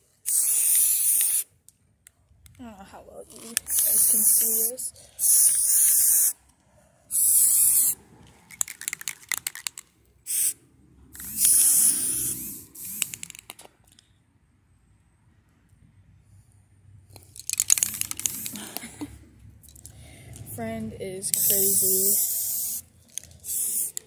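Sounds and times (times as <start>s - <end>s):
spray can hissing: 0.2s - 1.5s, 3.6s - 6.4s, 7.1s - 9.6s, 10.3s - 10.6s, 11.2s - 13.4s, 17.6s - 18.6s, 21.3s - 24.0s
short clicks: 12.8s - 14.1s.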